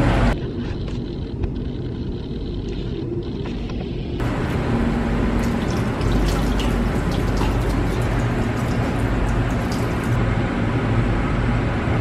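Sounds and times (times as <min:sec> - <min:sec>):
tap water splashing into a sink: 0:05.3 - 0:10.2.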